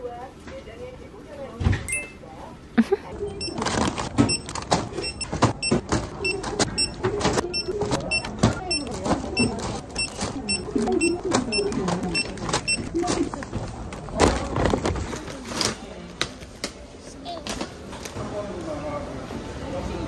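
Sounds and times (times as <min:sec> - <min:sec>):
high electronic beep: 0:01.9 - 0:02.2.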